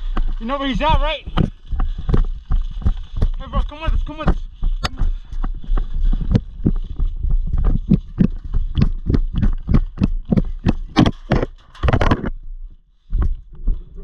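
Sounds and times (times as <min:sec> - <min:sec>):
running footsteps on mulch: 0:00.0 - 0:11.9
carried gear jostling: 0:00.0 - 0:12.3.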